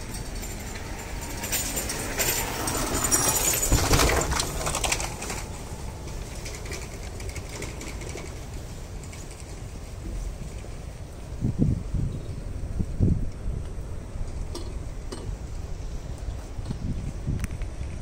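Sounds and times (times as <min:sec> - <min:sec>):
something rattling past: 0:00.0 - 0:08.4
low street rumble: 0:00.0 - 0:18.0.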